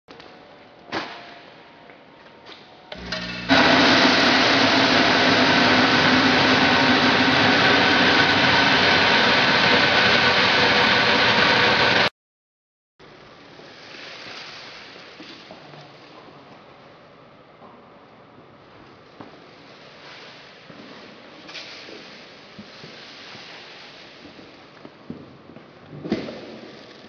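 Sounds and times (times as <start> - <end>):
grain sorter machine rushing noise: 3.0 - 12.1.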